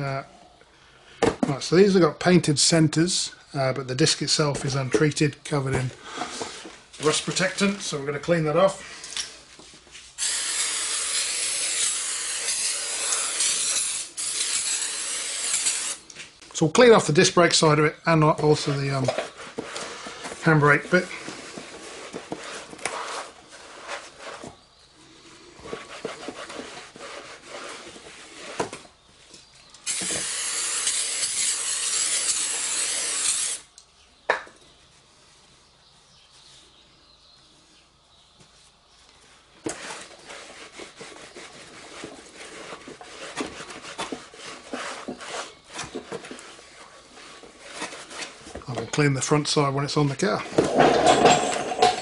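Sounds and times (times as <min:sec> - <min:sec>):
aerosol spray hissing: 0:10.2 - 0:16.0, 0:29.9 - 0:33.6
rag rubbing on brake disc: 0:39.6 - 0:48.5.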